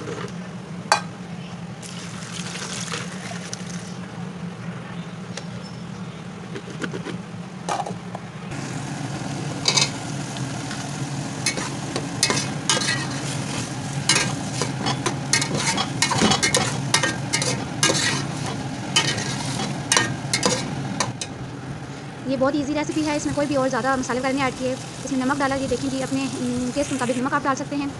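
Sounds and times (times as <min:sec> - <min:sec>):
steady low hum: 0:03.4 - 0:27.9
vegetables sizzling in oil: 0:08.5 - 0:21.4, 0:22.4 - 0:27.9
metal spoon clinking against pot: 0:14.1 - 0:18.3, 0:19.0 - 0:21.4.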